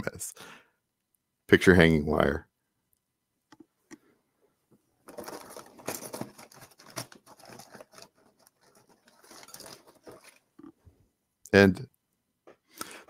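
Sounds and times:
rummaging through small hardware: 5.0 - 10.8.

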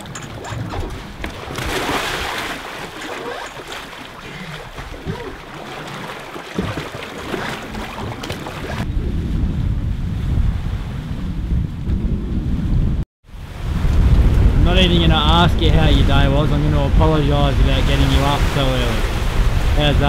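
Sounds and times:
person splashing into water: 0.0 - 8.9
sea water rushing and sloshing: 0.0 - 11.6, 13.3 - 20.0
wind buffeting microphone: 6.6 - 20.0.

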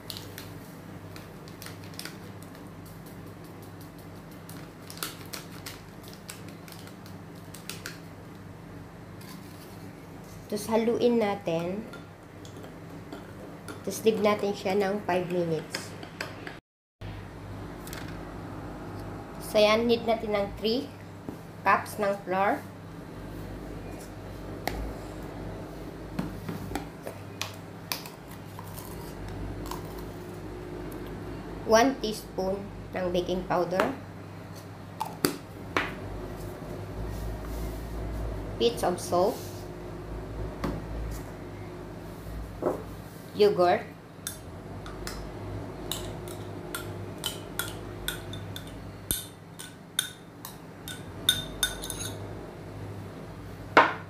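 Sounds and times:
steady low hum: 0.0 - 54.0
kitchen items clicking and tapping: 45.9 - 52.2.

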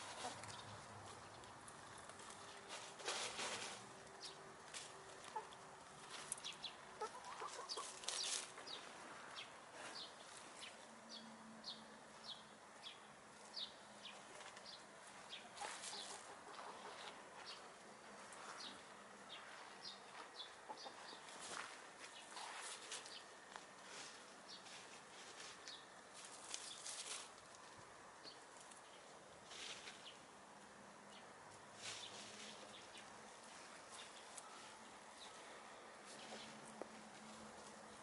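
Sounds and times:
hens clucking: 6.9 - 8.2, 15.4 - 17.6, 20.4 - 21.4.

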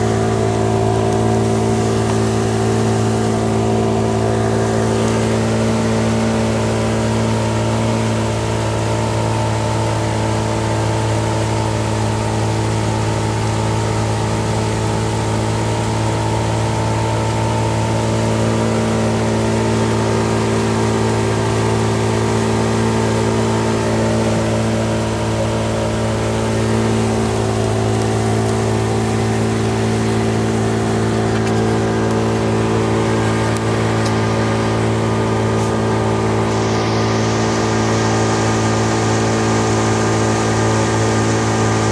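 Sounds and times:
boat engine droning: 0.0 - 41.9.

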